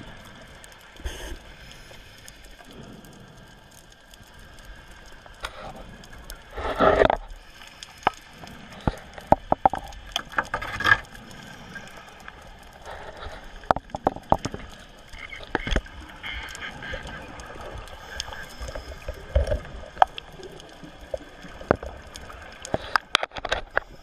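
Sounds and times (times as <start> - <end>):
faint crackling hiss: 0.0 - 24.0.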